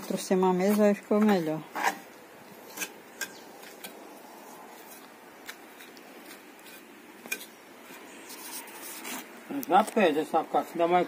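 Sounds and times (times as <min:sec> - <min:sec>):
faint background hiss: 0:00.0 - 0:11.0
trowel scraping and tapping cement: 0:02.7 - 0:04.0, 0:04.8 - 0:10.0.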